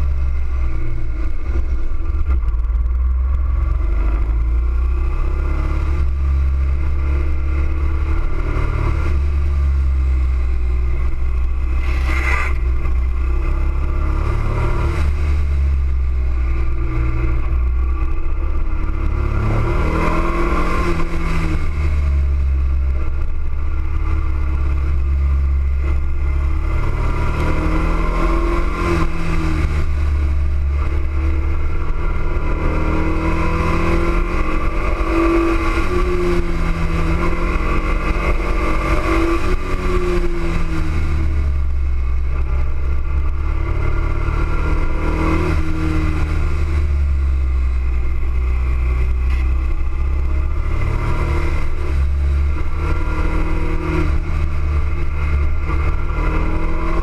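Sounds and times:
motorcycle engine revving: 0.0 - 57.0
wind rumble on microphone: 0.0 - 57.0.

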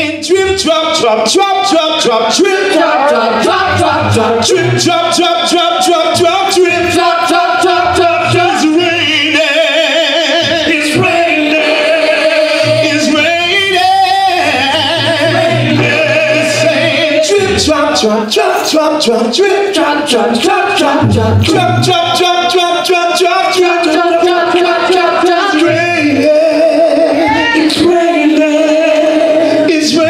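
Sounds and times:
steady beat: 0.5 - 29.1
choir singing through a pa: 2.1 - 30.0
low bass line: 2.8 - 17.8, 20.8 - 22.7.

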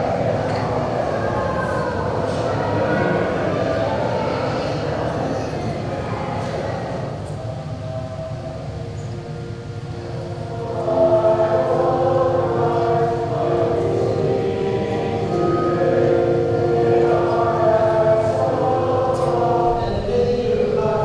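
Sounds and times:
music with long held notes: 7.1 - 21.0.

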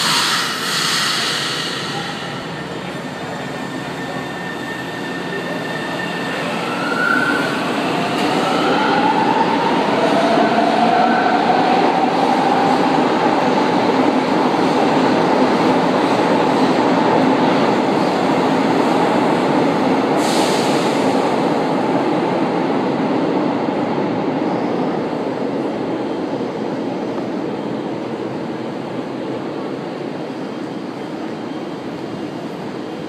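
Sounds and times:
air hiss: 0.0 - 2.2
train braking to a stop: 0.0 - 13.6, 20.0 - 21.8.

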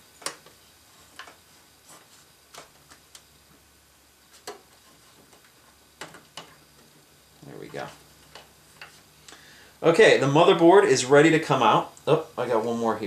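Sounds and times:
cables and connectors clicking: 0.2 - 1.4, 2.5 - 3.3, 7.7 - 9.4.

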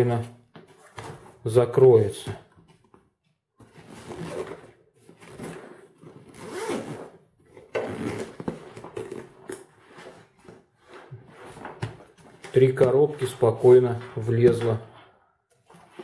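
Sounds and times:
zipper being pulled shut: 5.3 - 10.1.

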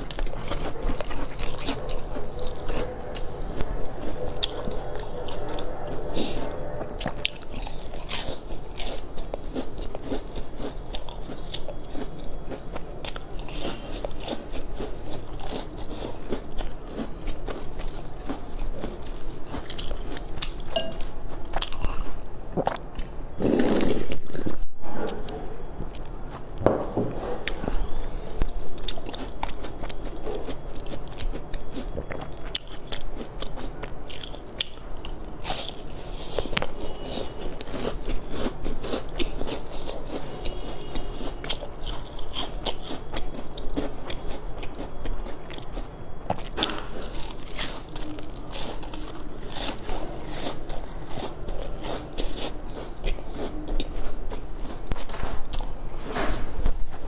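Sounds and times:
crunching bites of crisp pastry: 7.0 - 24.4, 28.8 - 53.9.

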